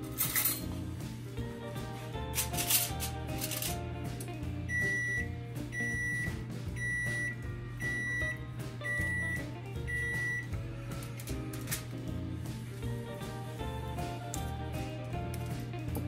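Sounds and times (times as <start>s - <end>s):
background music: 0.0s - 16.0s
oven beeping: 2.1s - 12.0s.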